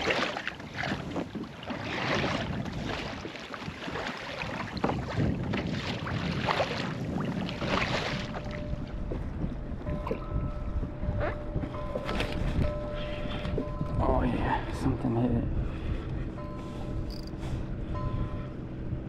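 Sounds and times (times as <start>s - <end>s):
water splashing against hull: 0.0s - 19.0s
wind buffeting microphone: 0.0s - 19.0s.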